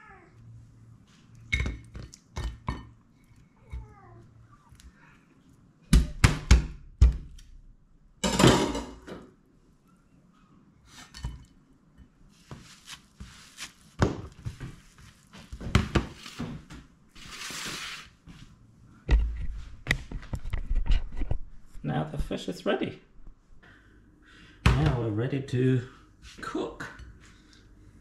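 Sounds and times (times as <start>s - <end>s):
sponge wiping: 12.3s - 15.6s.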